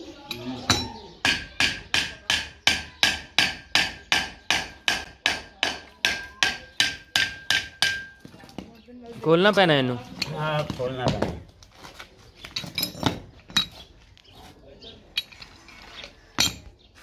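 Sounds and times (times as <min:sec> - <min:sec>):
hammer striking metal: 0:00.3 - 0:08.2.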